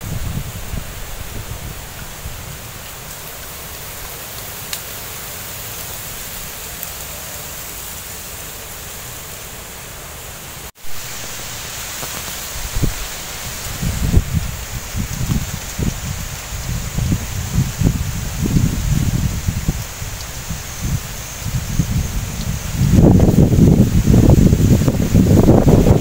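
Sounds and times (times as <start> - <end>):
oil sizzling around frying egg: 10.7 - 26.0.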